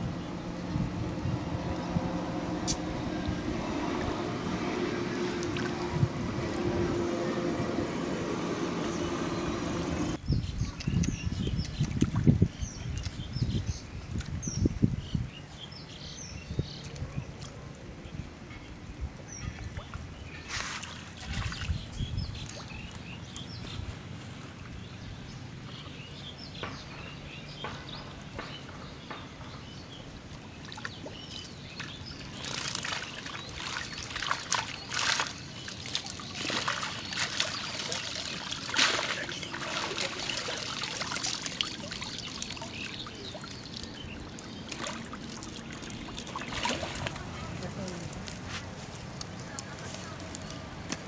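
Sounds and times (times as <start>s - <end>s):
water sloshing and trickling: 1.6s - 6.6s, 10.0s - 14.9s, 19.3s - 51.0s
water splashes: 2.6s - 6.6s, 10.1s - 13.2s, 19.5s - 25.0s, 30.3s - 51.0s.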